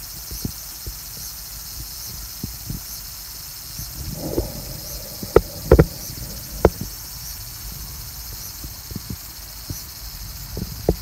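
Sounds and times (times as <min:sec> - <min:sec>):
steady high hiss: 0:03.8 - 0:07.4
low rumble: 0:03.8 - 0:07.6.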